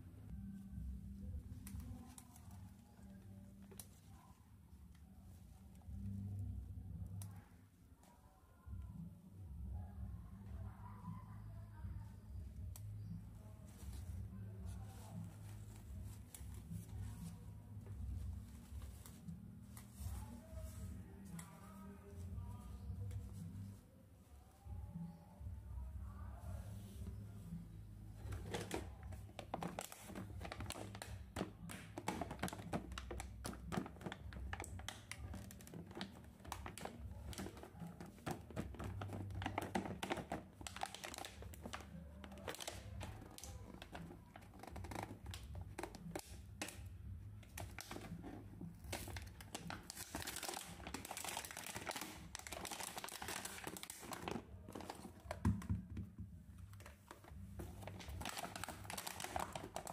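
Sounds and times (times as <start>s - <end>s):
plastic packaging crinkling: 28.2s - 46.8s, 47.5s - 55.6s, 56.7s - 59.9s.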